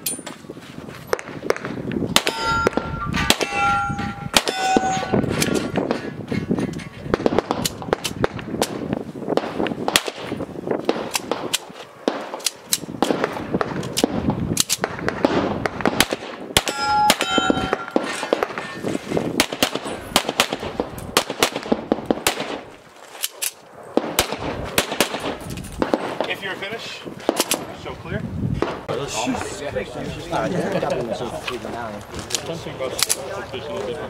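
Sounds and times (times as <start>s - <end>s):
handgun shots: 1.5s - 5.8s
steel target ringing: 2.2s - 5.8s, 16.6s - 18.8s.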